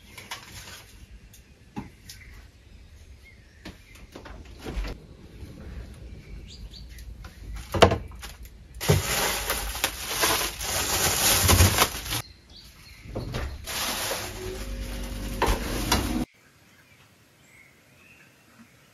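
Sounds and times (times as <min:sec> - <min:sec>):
plastic bag crinkling: 0:07.6 - 0:12.2, 0:13.6 - 0:15.4.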